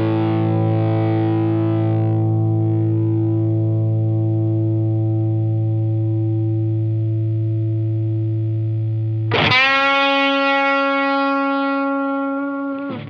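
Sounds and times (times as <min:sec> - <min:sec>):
electric guitar notes ringing: 0:00.0 - 0:06.6, 0:09.3 - 0:13.0.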